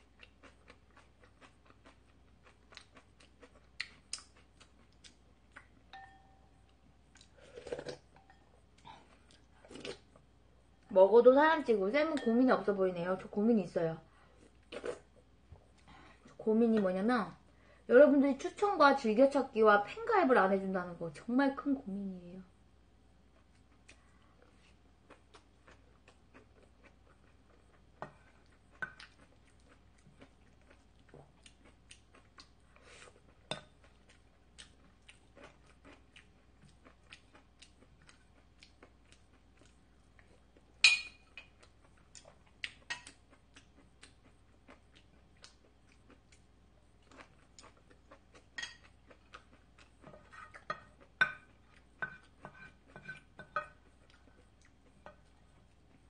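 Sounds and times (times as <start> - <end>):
soft chewing: 0.0 - 10.9, 14.0 - 17.9, 23.2 - 56.0
utensils clinking on dishes: 40.8 - 41.2.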